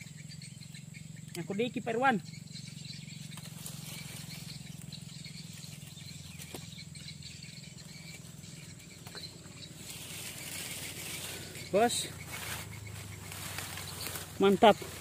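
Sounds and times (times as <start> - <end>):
insects chirring: 0.0 - 15.0
rustling noise: 12.2 - 15.0.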